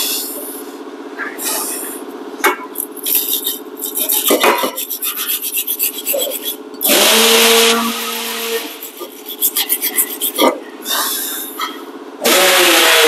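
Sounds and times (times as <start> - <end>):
wire brush scraping metal: 2.8 - 10.6.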